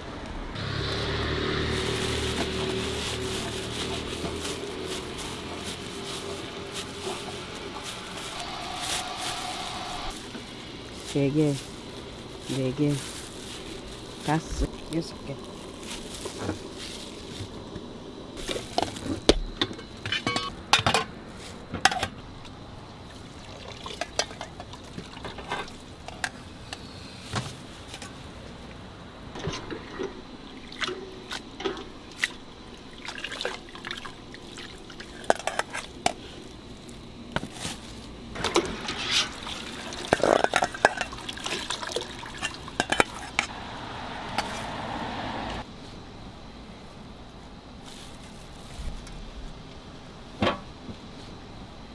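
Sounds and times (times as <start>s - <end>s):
water sloshing and splashing: 1.6s - 17.6s, 23.1s - 26.0s, 29.4s - 36.0s, 38.4s - 45.1s
metal pots and bowls clattering: 19.6s - 21.1s, 23.9s - 26.4s, 35.0s - 36.2s, 38.4s - 43.5s.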